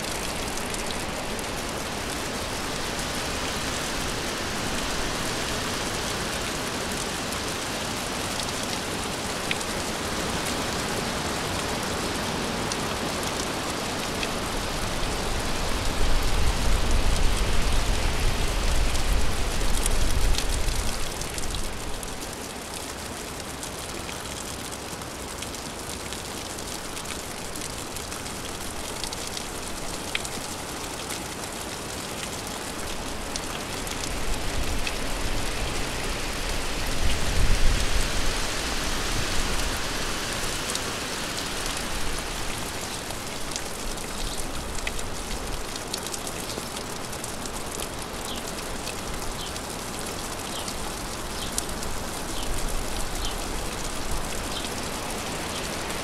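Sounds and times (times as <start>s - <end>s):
raindrops ticking: 0.0s - 2.4s, 19.7s - 36.6s, 41.6s - 56.0s
steady rain falling: 0.0s - 56.0s.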